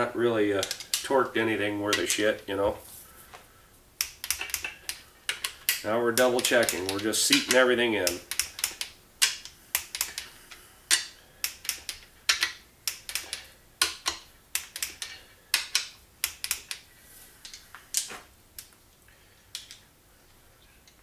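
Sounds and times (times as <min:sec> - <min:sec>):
socket wrench clicking: 0:04.0 - 0:10.3, 0:10.9 - 0:16.8.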